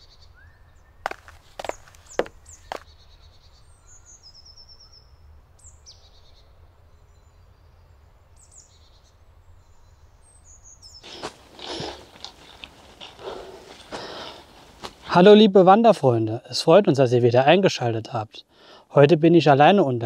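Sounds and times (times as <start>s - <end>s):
small birds chirping: 0.0s - 15.1s
footsteps crunching dry leaves: 1.1s - 2.8s, 11.0s - 15.1s.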